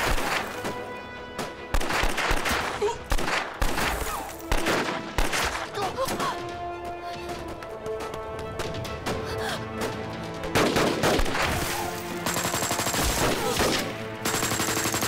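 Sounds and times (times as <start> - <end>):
background music long notes: 0.0 - 15.0
gunshots with echoing tails: 1.4 - 5.7, 10.4 - 15.0.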